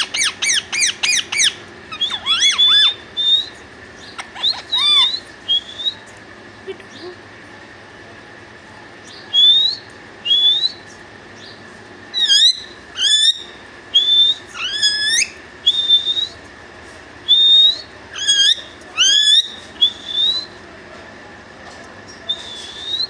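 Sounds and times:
parakeet rising whistles: 0.0s - 3.6s, 4.2s - 6.1s, 9.3s - 10.8s, 12.2s - 16.4s, 17.2s - 20.6s, 22.3s - 23.0s.

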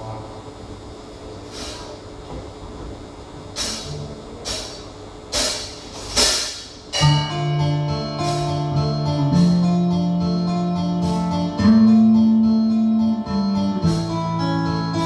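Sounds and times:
cymbal strikes: 3.6s - 10.0s
electric guitars and keyboard chords: 7.0s - 15.0s.

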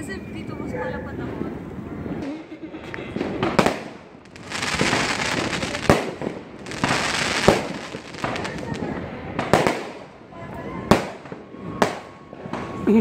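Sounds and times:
firework bangs: 1.4s - 12.9s
firework crackling: 3.0s - 13.0s.

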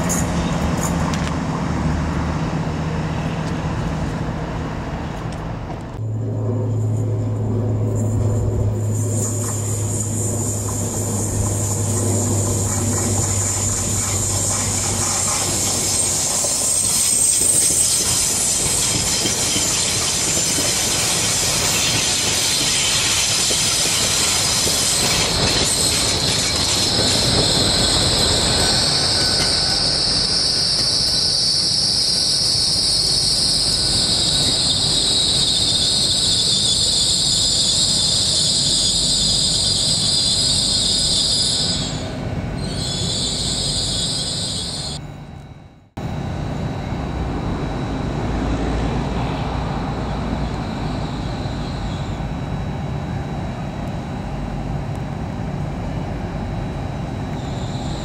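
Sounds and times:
train wheel squeal: 0.0s - 1.2s, 7.9s - 45.0s, 49.0s - 53.4s, 56.9s - 58.0s
train wheels rumbling: 0.0s - 45.0s.

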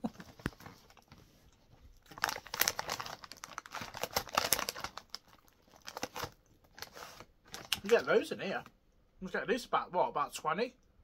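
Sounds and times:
plastic packet crinkling: 2.0s - 8.7s.

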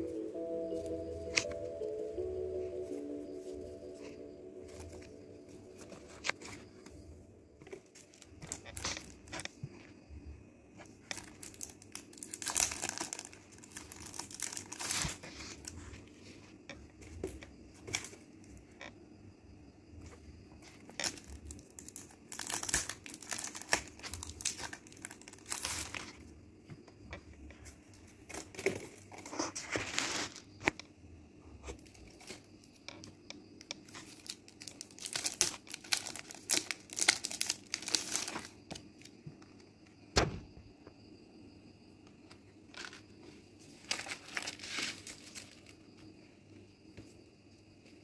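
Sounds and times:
plastic packaging crinkling: 7.7s - 9.6s, 11.0s - 15.8s, 20.9s - 26.2s, 33.8s - 39.1s, 43.8s - 45.8s
sharp knock: 40.2s - 40.5s.

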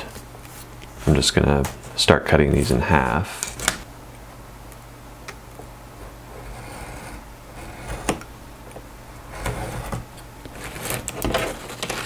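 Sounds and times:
steady low hum: 0.0s - 12.0s
hobby knife scoring along a ruler: 6.3s - 8.2s.

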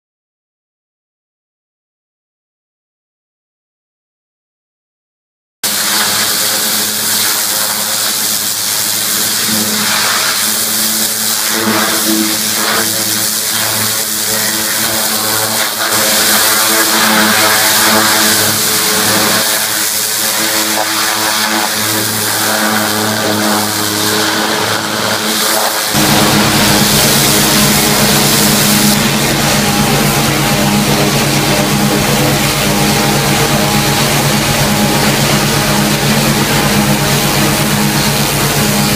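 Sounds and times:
engine hum: 5.7s - 38.9s
pressure washer jet hissing: 5.7s - 38.9s.

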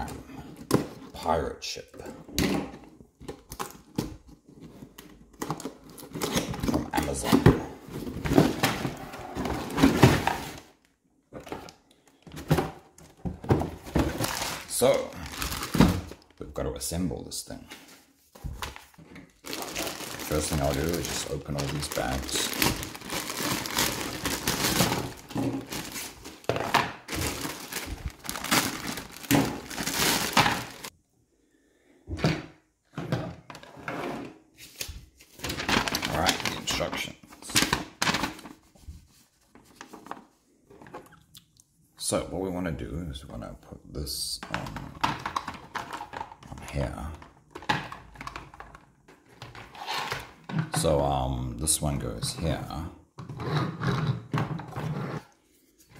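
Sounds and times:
cardboard rustling: 3.8s - 16.4s, 17.7s - 30.9s
plastic bags crinkling and tearing: 14.0s - 16.4s, 18.8s - 30.9s, 35.4s - 38.4s.

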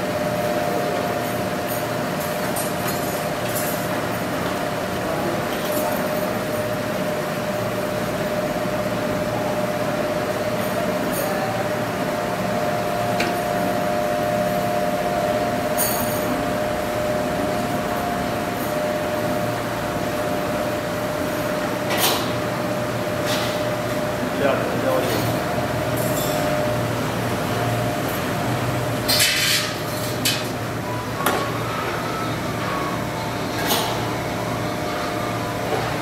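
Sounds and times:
machine humming with whine: 5.8s - 36.0s.

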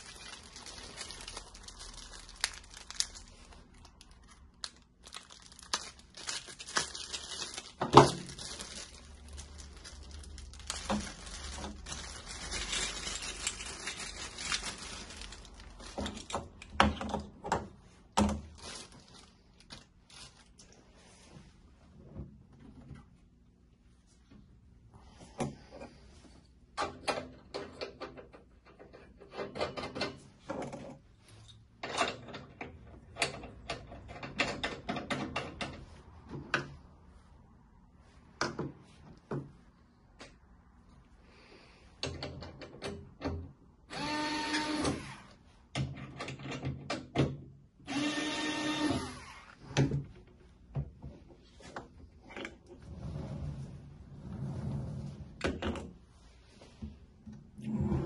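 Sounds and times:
electric screwdriver running: 43.9s - 45.0s, 47.9s - 49.4s.

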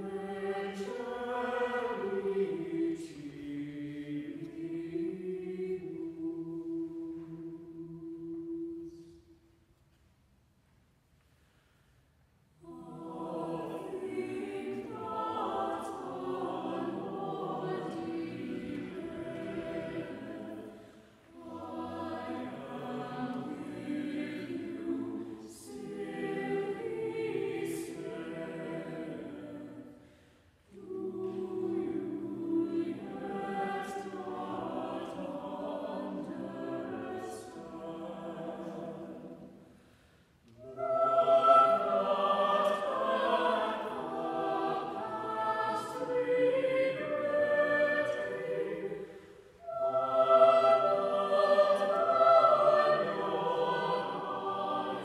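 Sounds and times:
mixed choir singing unaccompanied: 0.0s - 9.3s, 12.6s - 30.1s, 30.7s - 39.8s, 40.5s - 55.0s.

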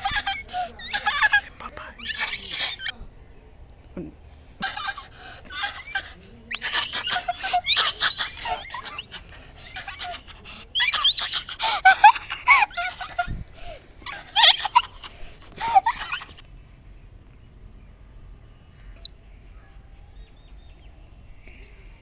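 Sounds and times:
children laughing and squealing: 0.0s - 3.0s, 4.6s - 16.4s
faint outdoor background: 0.0s - 22.0s.

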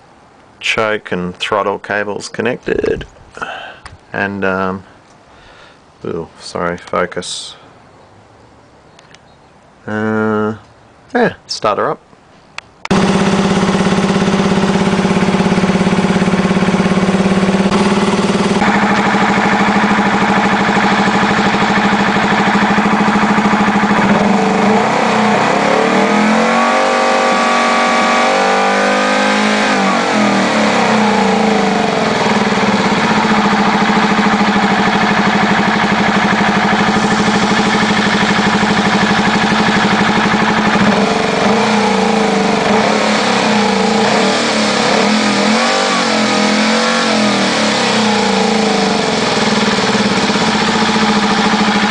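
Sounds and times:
motorcycle engine starting and running: 12.8s - 51.9s
engine revving: 12.9s - 51.9s.

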